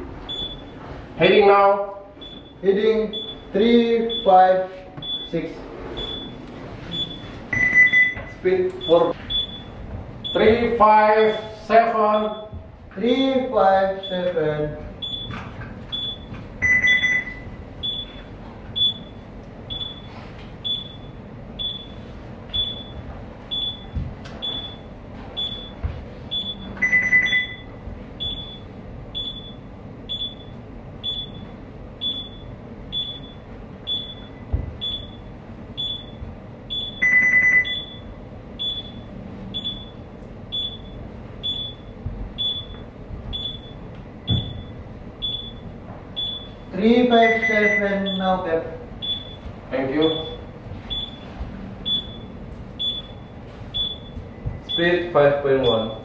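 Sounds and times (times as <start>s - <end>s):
short high alarm beeps: 6.0s - 10.5s, 15.0s - 18.2s, 18.8s - 42.8s, 43.4s - 45.6s, 46.2s - 48.3s, 49.0s - 49.4s, 51.8s - 54.9s
lower longer alarm tone: 15.0s - 48.4s, 49.0s - 56.0s.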